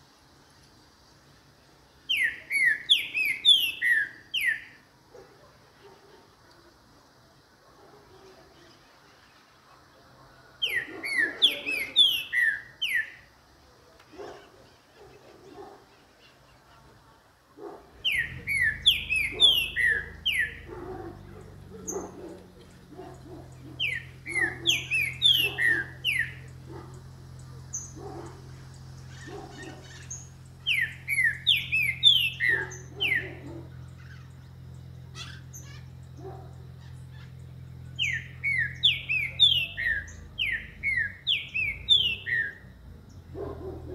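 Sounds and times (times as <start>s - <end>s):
bird singing whistled phrases: 2.1s - 4.8s, 10.6s - 13.3s, 18.0s - 20.7s, 23.7s - 26.5s, 29.1s - 33.4s, 36.8s - 42.7s.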